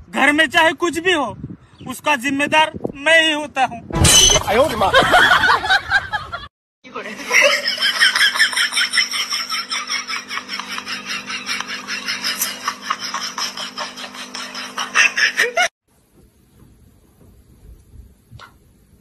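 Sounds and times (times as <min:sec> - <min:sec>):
person laughing hard: 0:07.2 - 0:15.7.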